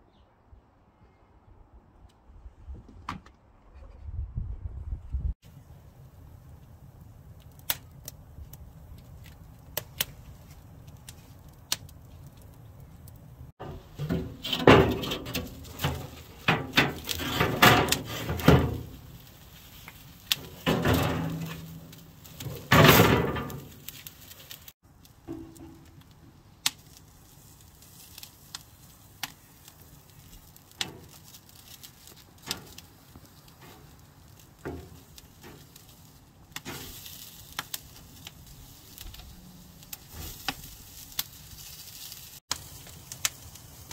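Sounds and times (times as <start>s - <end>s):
wood fire crackling: 5.4s - 43.9s
metal grate scraping and rattling: 13.6s - 19.4s, 20.3s - 24.6s.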